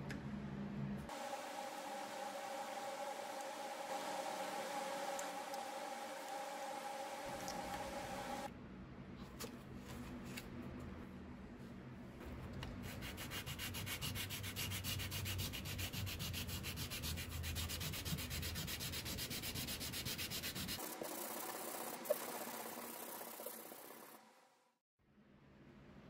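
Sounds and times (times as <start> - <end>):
metal scratching on sandpaper: 12.8 - 23.6.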